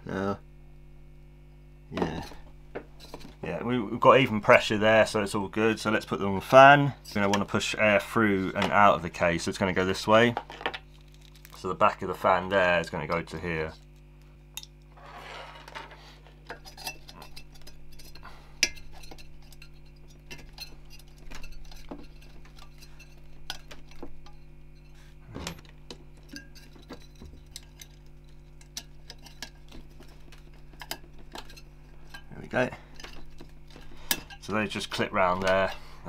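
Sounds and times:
brief scrape: 14.9 - 16.3.

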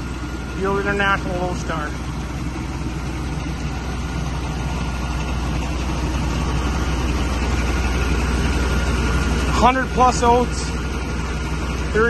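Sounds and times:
tractor engine running: 0.0 - 12.0
truck engine running: 0.0 - 12.0.

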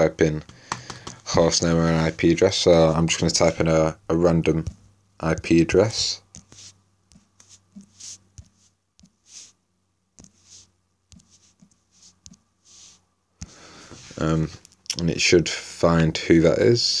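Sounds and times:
fingertip taps on touchscreen: 0.7 - 1.2.

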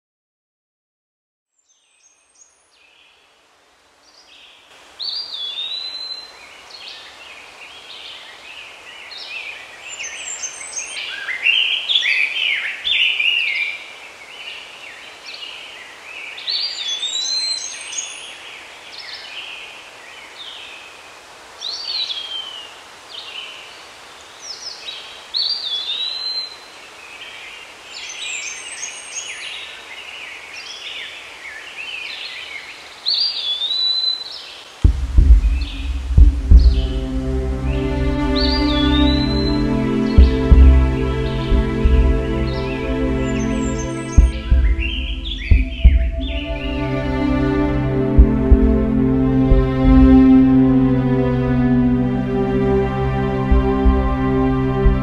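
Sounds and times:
steady background hiss: 1.8 - 55.0
birds singing and chirping: 28.0 - 49.0.

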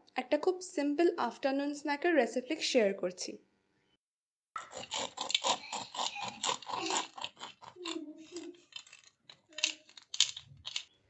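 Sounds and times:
knife crunching through crust: 4.6 - 10.8.

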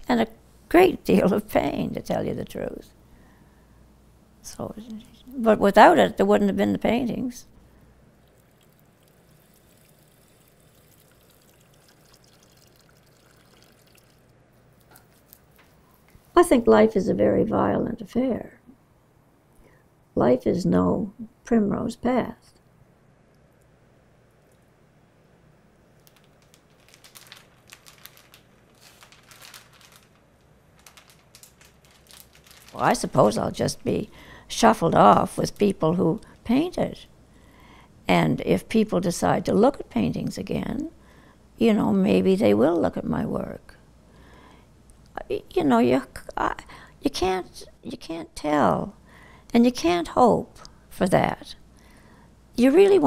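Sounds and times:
water trickling over fish: 8.1 - 15.6, 26.0 - 33.8
plastic bag crinkling: 8.2 - 16.1, 26.0 - 34.1.

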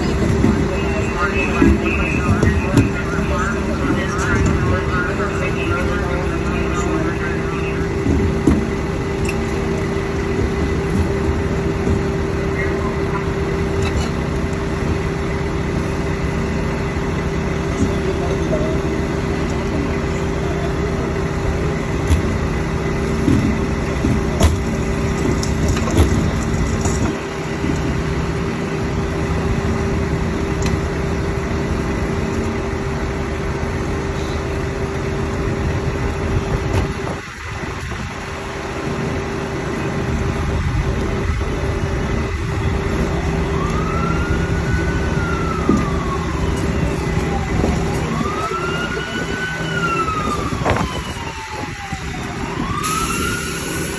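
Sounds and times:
siren wailing: 0.0 - 13.8, 41.1 - 53.9
knocks and clanks of rescue work: 0.0 - 53.4
steady engine drone: 0.0 - 53.9.

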